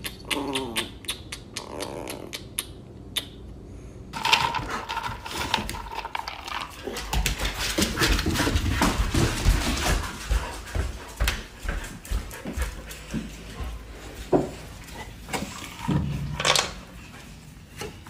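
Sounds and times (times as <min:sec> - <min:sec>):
dog paws on wooden floor: 0:04.2 - 0:18.0.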